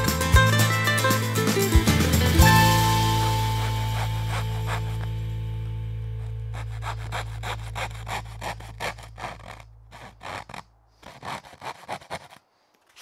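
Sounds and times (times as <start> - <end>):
hand saw cutting plywood: 2.5 - 5.3, 6.1 - 13.0.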